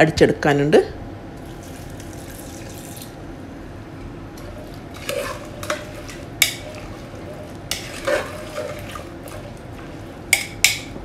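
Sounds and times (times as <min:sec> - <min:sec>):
water pouring into a pot: 0:01.4 - 0:03.1
spoon stirring and scraping pot: 0:04.4 - 0:11.0
spoon clinking against pot: 0:05.0 - 0:09.0, 0:10.3 - 0:11.0.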